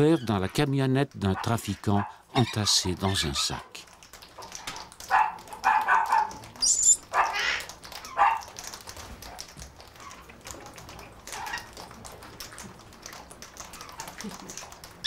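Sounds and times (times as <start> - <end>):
parrots squawking: 1.4 - 3.6, 5.7 - 8.4.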